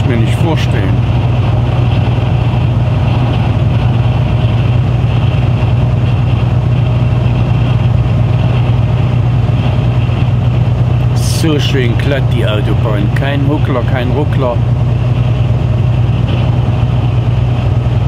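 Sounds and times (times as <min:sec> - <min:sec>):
truck engine drone: 0:00.0 - 0:18.0.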